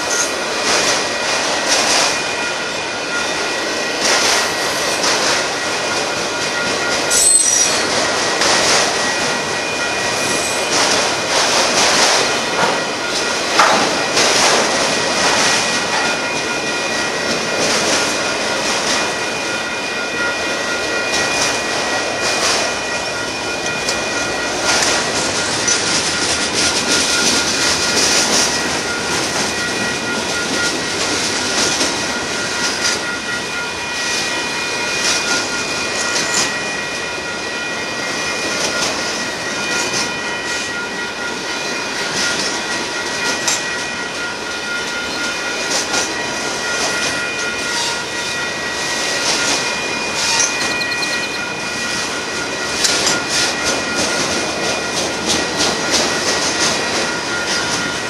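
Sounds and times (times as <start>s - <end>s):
crossing signal bell ringing: 0.0s - 58.0s
freight train rolling past: 0.0s - 58.0s
steady high tones: 0.0s - 58.0s
wheels clacking over rail joints: 4.0s - 19.5s, 20.7s - 33.3s.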